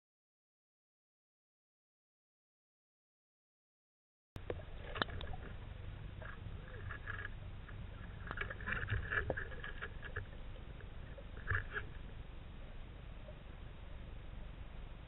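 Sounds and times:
low steady rumble: 0:04.4 - 0:15.0.

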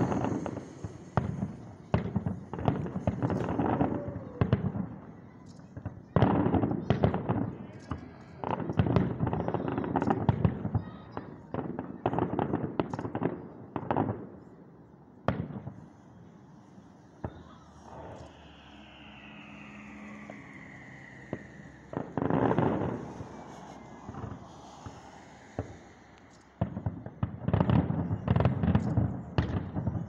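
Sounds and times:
firework whistle falling in pitch: 0:00.0 - 0:05.0, 0:17.2 - 0:23.4
fireworks bangs and crackling: 0:00.0 - 0:18.4, 0:19.2 - 0:30.0.

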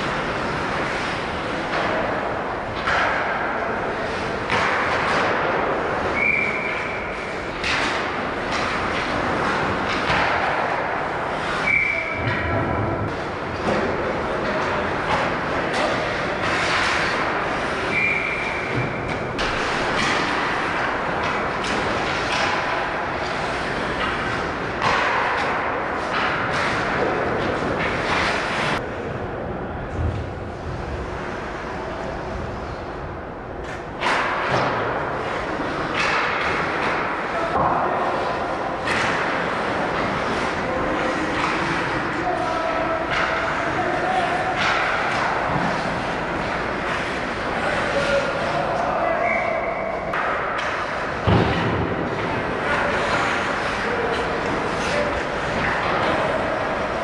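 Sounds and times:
hockey sticks and puck knocking: 0:00.0 - 0:28.9, 0:33.6 - 0:57.0
arena noise: 0:00.0 - 0:57.0
skates scraping ice: 0:00.0 - 0:57.0
referee's whistle: 0:06.2 - 0:06.9, 0:11.6 - 0:12.2.

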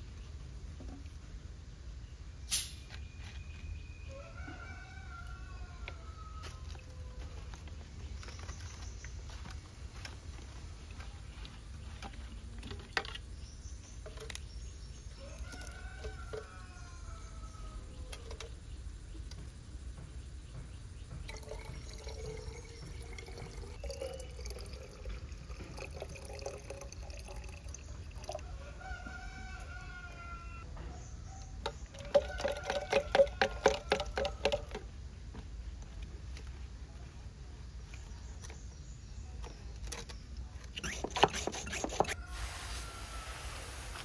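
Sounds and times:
chickens calling: 0:28.2 - 0:34.9.

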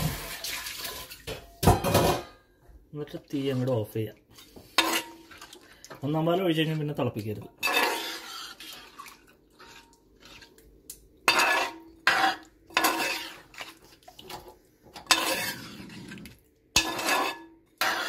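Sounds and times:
spoon scraping metal pot: 0:04.4 - 0:05.5, 0:07.6 - 0:10.6, 0:11.3 - 0:18.0.

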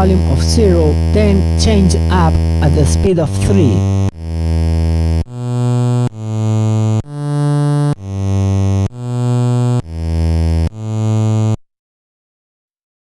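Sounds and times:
low synth notes: 0:00.0 - 0:11.6.

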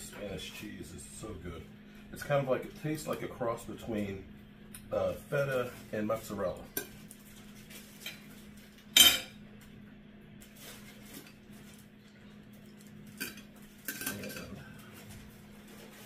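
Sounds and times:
steady low hum: 0:00.0 - 0:16.0
metal tongs clinking on plate: 0:13.2 - 0:14.5.

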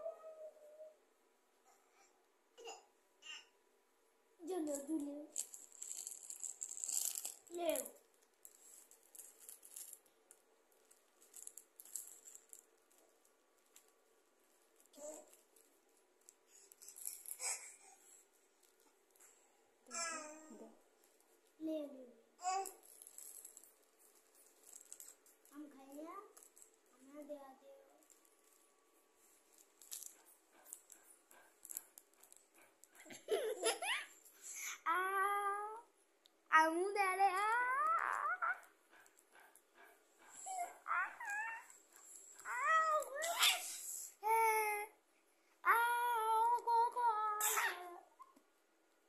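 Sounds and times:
small object rattling when shaken: 0:04.5 - 0:14.0, 0:14.6 - 0:17.7, 0:22.4 - 0:27.3, 0:28.0 - 0:34.4
plastic wrapper crinkling: 0:04.6 - 0:17.6, 0:22.5 - 0:27.0, 0:29.4 - 0:31.0
baby giggling: 0:33.1 - 0:34.2.

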